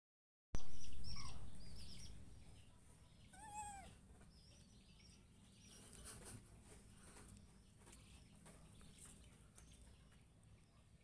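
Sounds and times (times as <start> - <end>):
young monkey squealing coo: 3.3 - 4.0.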